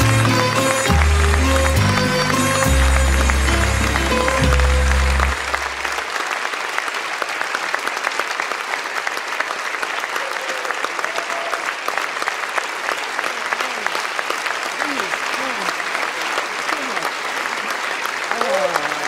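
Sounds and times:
music: 0.0 - 6.0
audience applauding: 0.0 - 19.0.

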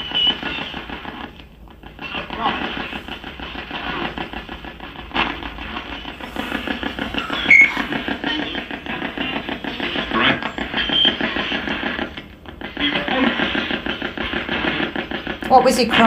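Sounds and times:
fast-chopped radio static: 0.0 - 16.0
snatches of broadcast sound: 0.0 - 16.0
loud squeak: 6.3 - 8.2.

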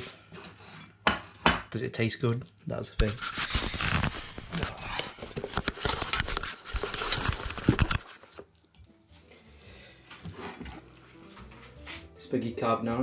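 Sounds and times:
camera handling noise: 3.0 - 8.2.

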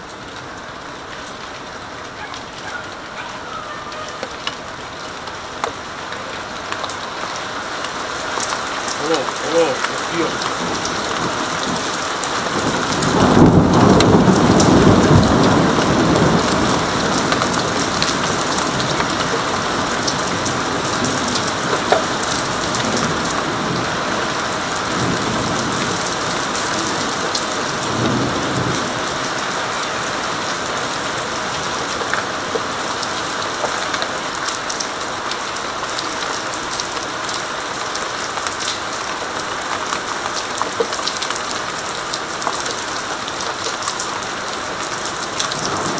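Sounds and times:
heavy rain: 0.0 - 45.9
raindrops ticking: 0.0 - 45.9
rolling thunder: 10.3 - 29.1.

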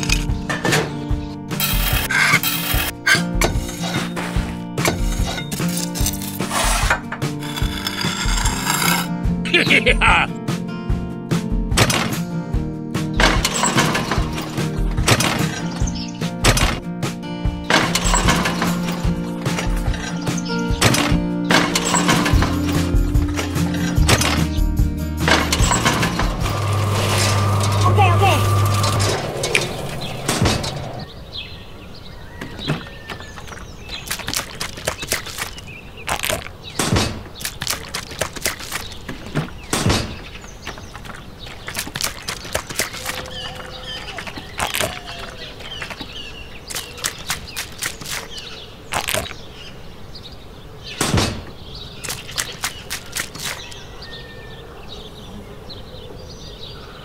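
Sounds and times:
birds chirping: 0.0 - 10.5, 12.1 - 57.0.

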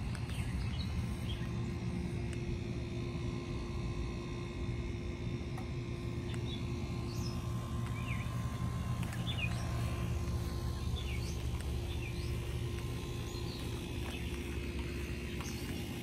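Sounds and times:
low outdoor hum: 0.0 - 16.0
songbirds chirping: 0.0 - 16.0.

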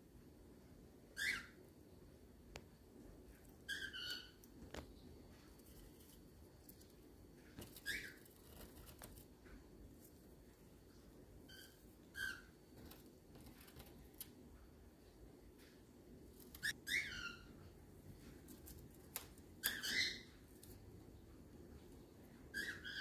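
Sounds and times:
cockatiel whistled chirps: 1.2 - 1.6, 16.6 - 17.5.

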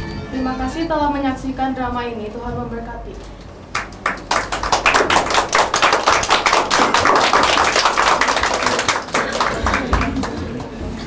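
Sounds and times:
applause: 3.7 - 11.0.

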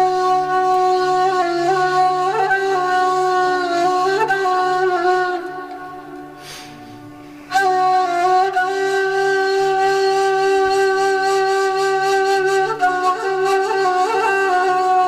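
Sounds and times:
cane flute playing: 0.0 - 15.0
breathy rush: 6.4 - 7.5.

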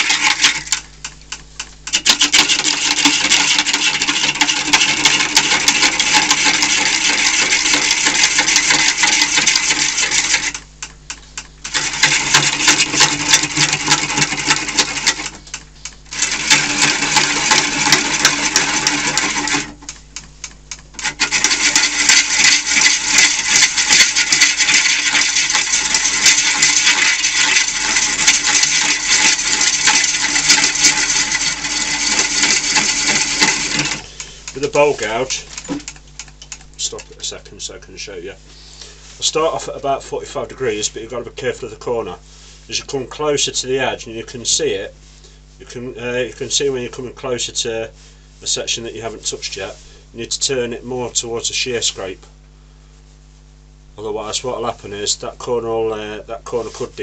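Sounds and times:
lathe hum: 0.0 - 37.3
gouge rattling cut on wood: 1.4 - 10.9, 11.7 - 15.4, 16.2 - 19.9, 21.0 - 36.3.

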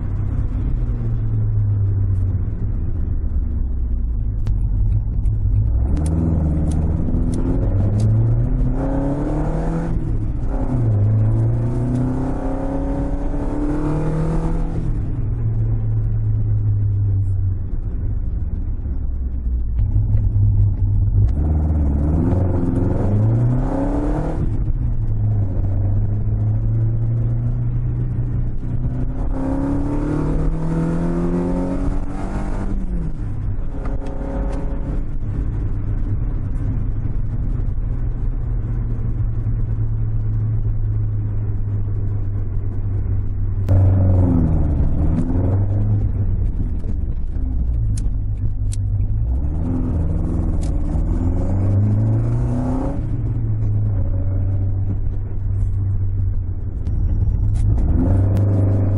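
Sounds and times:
car engine revving inside cabin: 0.0 - 58.9.

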